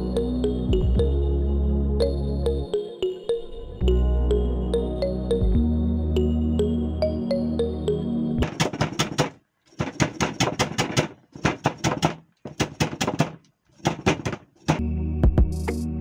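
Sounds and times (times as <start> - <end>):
background music: 0.0 - 8.4, 14.8 - 16.0
cleaver chopping on wooden board: 8.4 - 14.8.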